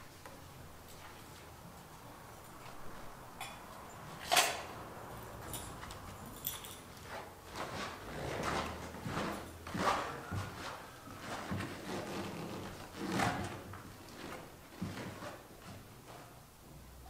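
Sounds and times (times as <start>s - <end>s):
rustling: 5.4s - 16.3s.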